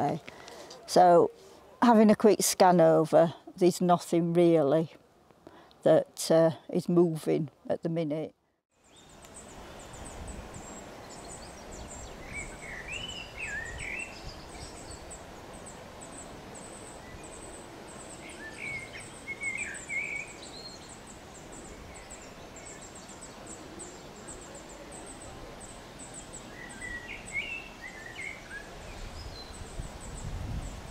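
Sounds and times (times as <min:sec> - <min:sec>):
songbird warbling: 0:08.9 - 0:30.8.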